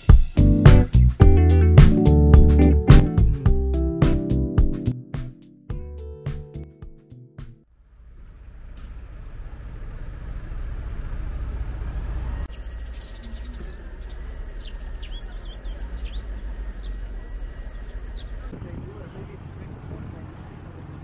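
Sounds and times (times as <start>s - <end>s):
low rumble of traffic: 7.7s - 21.0s
bird chirps: 12.4s - 18.5s.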